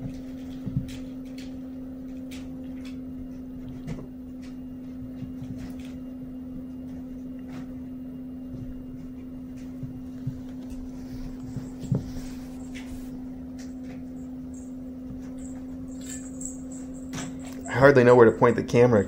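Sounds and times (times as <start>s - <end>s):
steady low hum: 0.0s - 19.0s
kittens scuffing and thumping: 3.2s - 17.6s.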